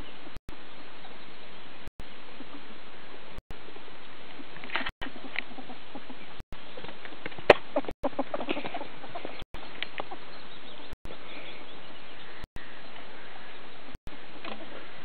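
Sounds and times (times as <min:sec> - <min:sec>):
ferrets dooking: 0:05.0 - 0:06.4, 0:07.4 - 0:13.5.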